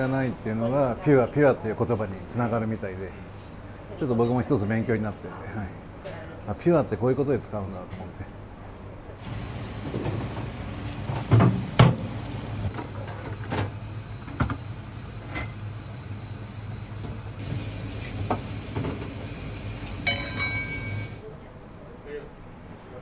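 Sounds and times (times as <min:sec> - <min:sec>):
ringing clink: 0:20.0 - 0:21.2.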